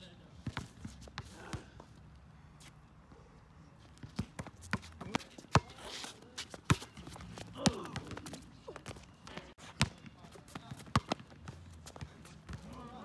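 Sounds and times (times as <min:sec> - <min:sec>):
basketball bouncing on concrete: 0:04.0 - 0:05.8, 0:06.6 - 0:13.0.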